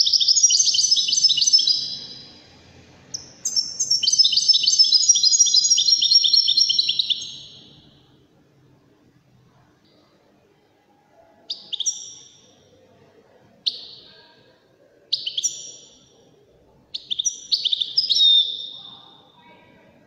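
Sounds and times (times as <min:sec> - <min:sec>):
goldfinch singing: 0:00.0 - 0:02.3, 0:03.1 - 0:07.8, 0:11.5 - 0:12.4, 0:15.1 - 0:16.0, 0:17.0 - 0:19.2.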